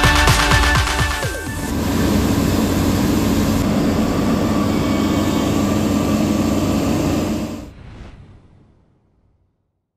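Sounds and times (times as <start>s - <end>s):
diesel truck engine droning: 1.1s - 7.7s.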